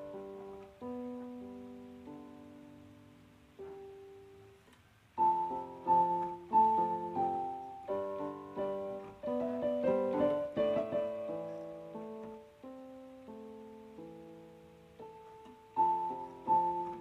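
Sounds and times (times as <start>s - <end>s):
piano chords: 0.0s - 17.0s.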